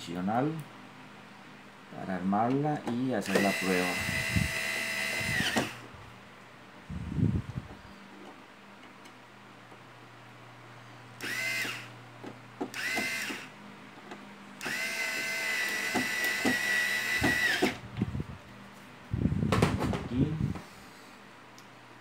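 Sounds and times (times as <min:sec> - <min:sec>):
electric screwdriver running: 0:03.2 - 0:05.8, 0:11.2 - 0:11.9, 0:12.7 - 0:13.5, 0:14.6 - 0:17.8.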